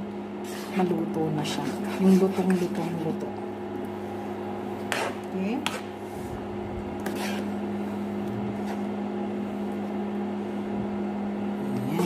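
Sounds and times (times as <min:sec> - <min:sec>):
electric hum of cooktop: 0:00.0 - 0:12.0
spoon scraping stirring rice: 0:00.4 - 0:00.8, 0:04.3 - 0:06.4, 0:07.0 - 0:08.9.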